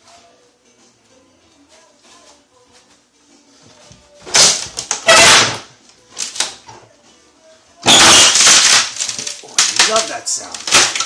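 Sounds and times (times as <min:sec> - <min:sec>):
wooden cabinet cracking and breaking: 0:04.2 - 0:06.7, 0:07.8 - 0:11.0.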